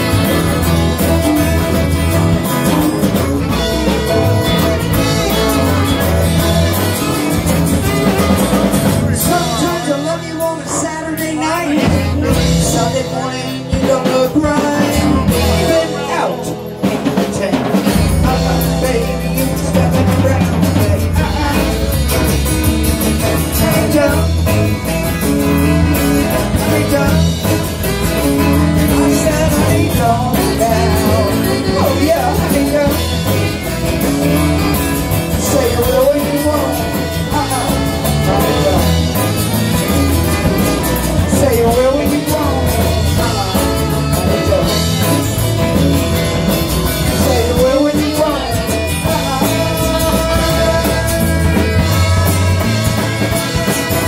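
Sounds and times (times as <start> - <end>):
saxophone: 0.0 - 9.6, 21.2 - 41.9, 48.4 - 54.0
bass guitar: 0.0 - 54.0
guitars: 0.0 - 54.0.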